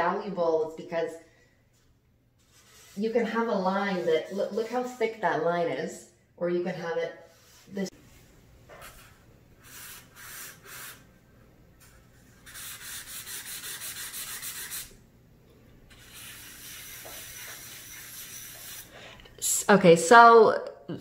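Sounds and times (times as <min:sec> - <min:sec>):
pencil scratching on paper: 0:02.4 - 0:04.9, 0:08.7 - 0:11.0, 0:12.4 - 0:14.9, 0:15.9 - 0:18.9.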